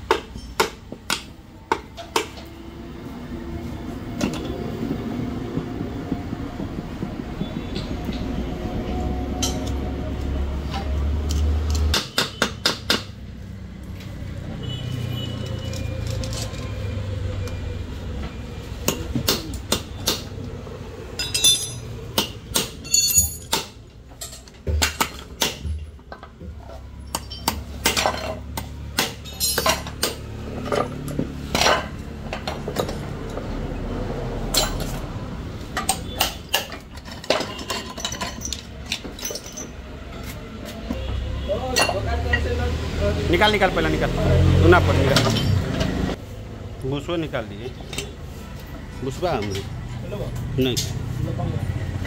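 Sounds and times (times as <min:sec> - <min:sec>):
metal tools knocking on engine: 0:21.1 - 0:33.2.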